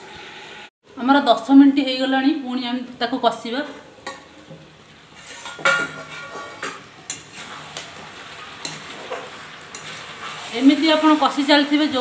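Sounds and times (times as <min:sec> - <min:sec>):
curry sizzling: 0:02.8 - 0:12.0
metal spatula scraping a pan: 0:03.7 - 0:11.4
steel lid clanking down: 0:05.4 - 0:06.8.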